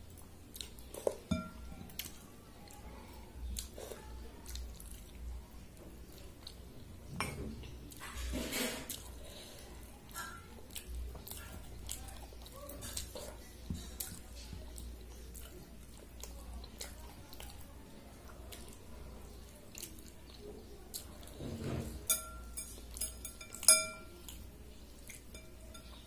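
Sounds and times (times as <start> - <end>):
hand clinking ceramic bowl: 1.3 - 1.7, 22.0 - 24.2, 25.3 - 26.0.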